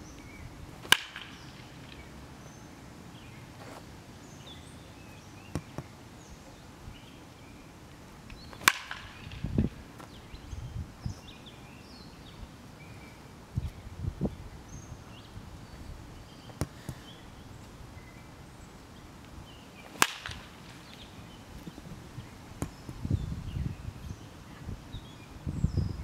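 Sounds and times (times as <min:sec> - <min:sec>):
baseball bat cracks: 0:00.8 - 0:02.0, 0:08.5 - 0:09.6, 0:19.9 - 0:20.8.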